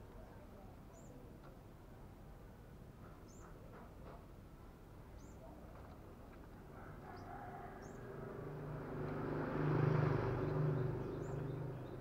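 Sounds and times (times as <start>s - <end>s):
motor vehicle passing: 7.6s - 12.0s.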